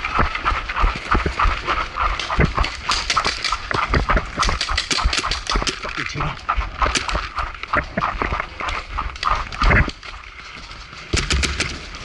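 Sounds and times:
paintball markers firing: 0:02.2 - 0:06.0, 0:11.1 - 0:11.9.

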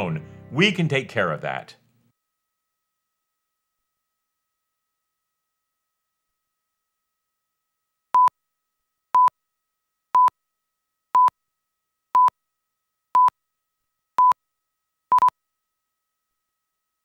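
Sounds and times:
countdown test-tone pips: 0:15.1 - 0:15.3.

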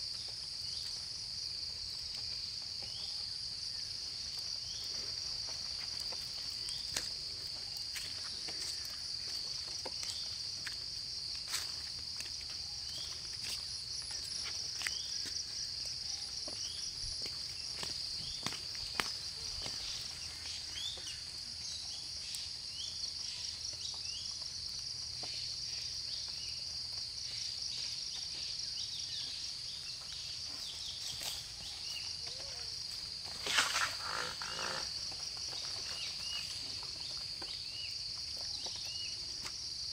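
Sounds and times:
insect chorus: 0:00.0 - 0:39.9
rustle: 0:18.3 - 0:39.8.

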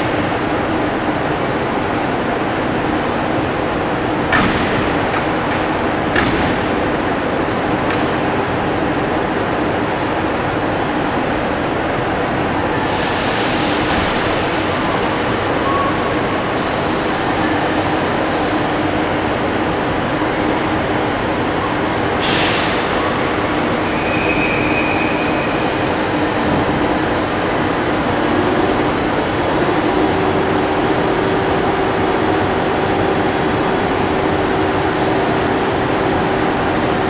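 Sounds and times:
train humming and rumbling: 0:00.0 - 0:37.0
hiss: 0:12.7 - 0:15.6.

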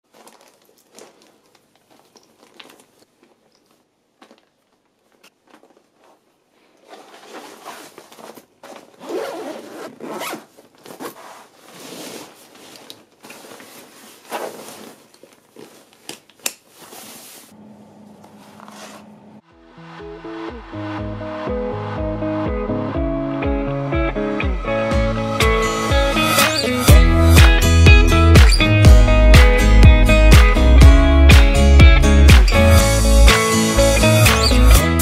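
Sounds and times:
clothes and plastic bags rustling: 0:00.0 - 0:19.4
backpack zippers zipping: 0:06.8 - 0:15.8.

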